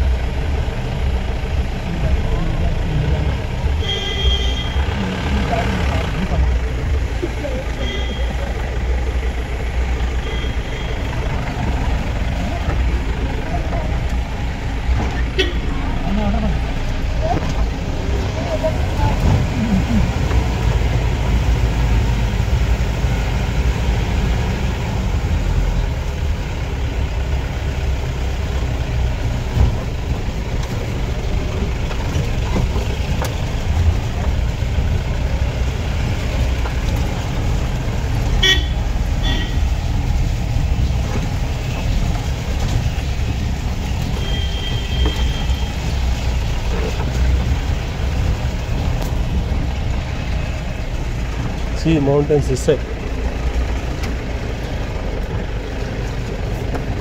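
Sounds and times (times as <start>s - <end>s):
car engine running: 0.0s - 57.0s
car horn toot: 3.8s - 4.9s, 7.8s - 8.5s, 10.2s - 11.1s, 15.3s - 15.7s, 38.4s - 39.7s, 44.0s - 45.9s.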